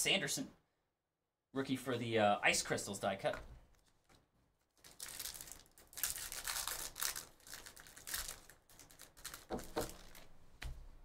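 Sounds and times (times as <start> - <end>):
pack of cards tearing: 4.8 - 10.3.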